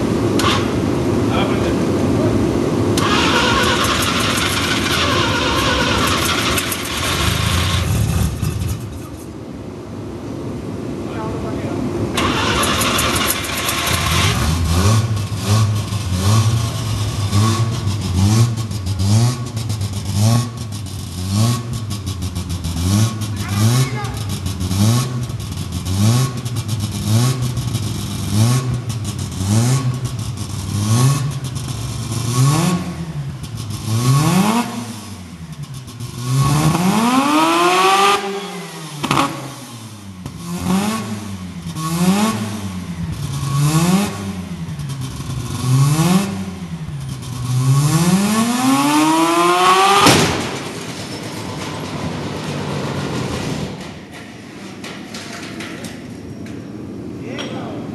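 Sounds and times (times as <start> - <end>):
steady rushing noise: 0.0 - 3.1, 3.7 - 12.2
engine revving: 0.1 - 9.1, 12.2 - 53.9
sharp bang: 50.0 - 51.4.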